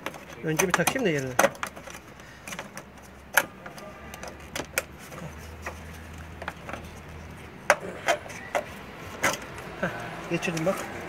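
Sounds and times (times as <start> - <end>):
tool clicks and knocks: 0.0 - 5.0, 5.6 - 6.9, 7.6 - 9.6.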